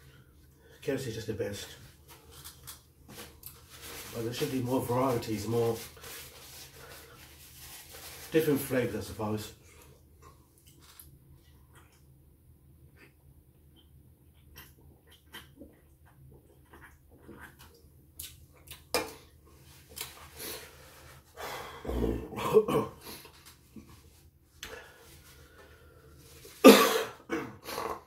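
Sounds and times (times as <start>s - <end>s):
man coughing: 22.1s - 23.0s, 26.6s - 27.7s.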